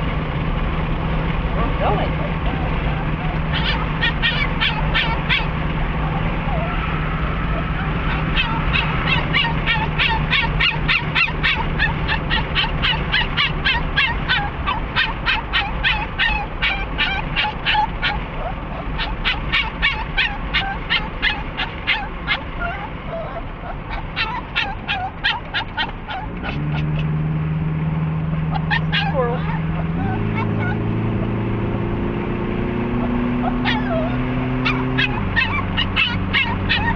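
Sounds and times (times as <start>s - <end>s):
dog whining: 1.8s - 27.1s, 28.3s - 31.4s, 32.8s - 36.9s
dog panting fast: 3.5s - 5.5s, 7.3s - 27.0s, 33.0s - 36.9s.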